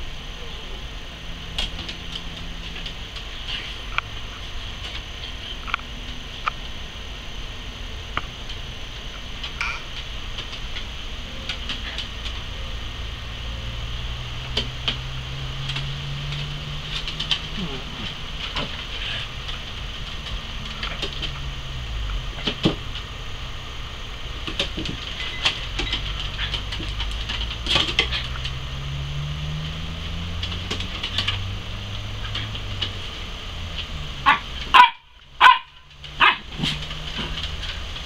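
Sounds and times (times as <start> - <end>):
small dogs barking: 34.2 - 37.9.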